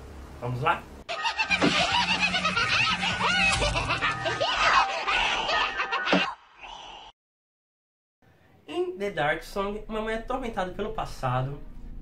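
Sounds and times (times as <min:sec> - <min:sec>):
laughter: 0:01.1 - 0:06.4.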